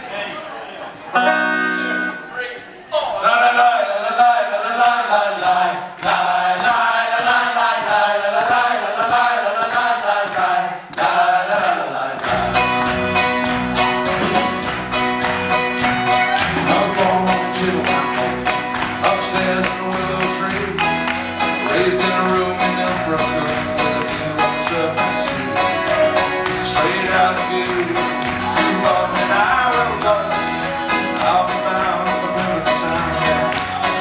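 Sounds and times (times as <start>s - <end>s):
acoustic guitar: 1.1s - 34.0s
bass: 12.2s - 34.0s
drums keeping a steady beat: 12.2s - 34.0s
accordion: 12.3s - 34.0s
banjo: 12.3s - 34.0s.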